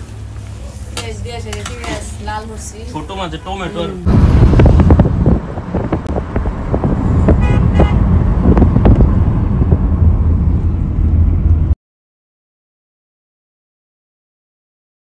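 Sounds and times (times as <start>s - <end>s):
highway traffic rumble: 0.0s - 11.8s
vehicle horn tooting: 7.3s - 8.1s.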